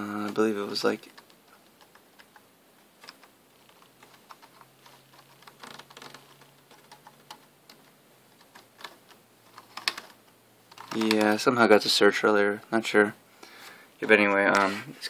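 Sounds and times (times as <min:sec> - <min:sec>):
computer keyboard clicks: 0:01.0 - 0:02.4, 0:03.0 - 0:07.8, 0:08.4 - 0:11.4.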